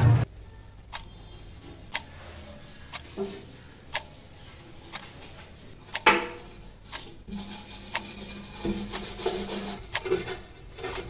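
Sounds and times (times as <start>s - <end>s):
clock ticking: 0.0s - 1.3s, 1.9s - 2.2s, 2.8s - 3.3s, 3.9s - 4.3s, 4.9s - 5.2s, 5.8s - 7.3s, 7.9s - 11.0s.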